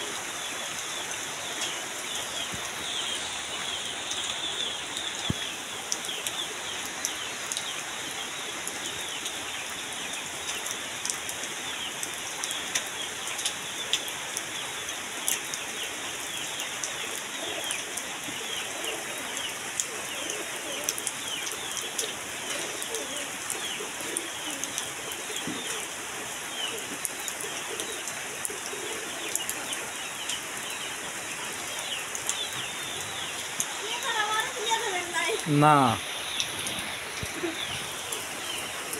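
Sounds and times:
steady rain falling: 0.0 - 38.9.

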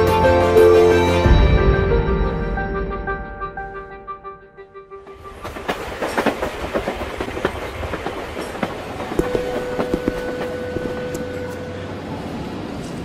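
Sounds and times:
train rumble: 4.8 - 13.0
train wheels clacking over rail joints: 5.1 - 11.7.

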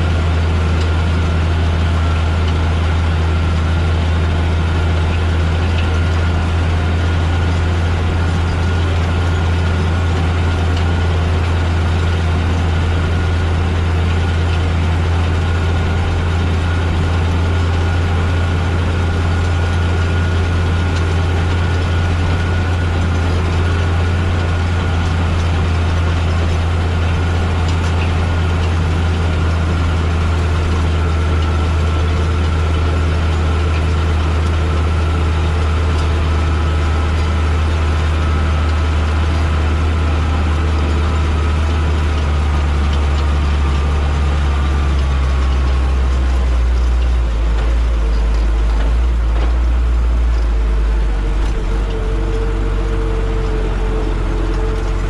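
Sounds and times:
tractor engine under load: 0.0 - 55.0.

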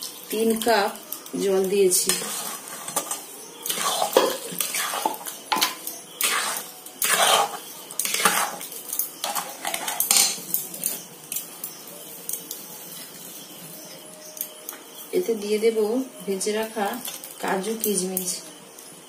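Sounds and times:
metal spatula scraping a metal pan: 1.8 - 11.9.

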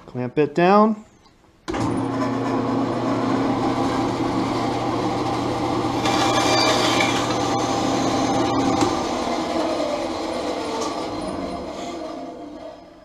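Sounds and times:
bandsaw motor hum: 1.7 - 13.0
blade cutting wood: 3.6 - 12.4.

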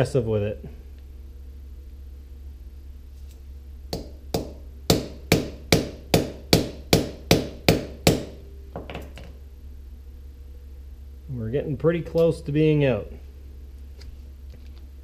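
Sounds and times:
hammer striking metal rod: 4.0 - 9.1.

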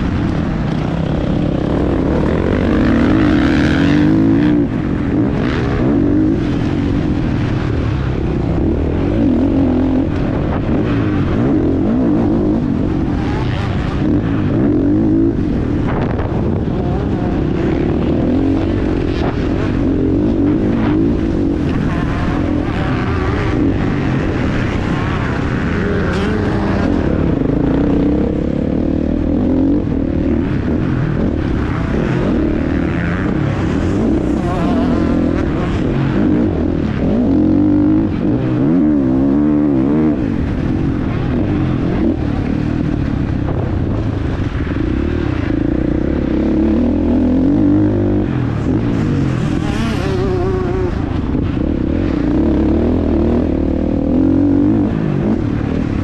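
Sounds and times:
motocross engine revving: 0.0 - 43.0, 44.4 - 56.0.

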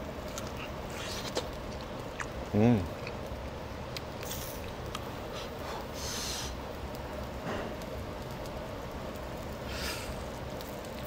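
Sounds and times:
low background hum: 0.0 - 11.0
chewing meat off bone: 0.2 - 5.1
hissing mouth noises: 5.3 - 6.6.

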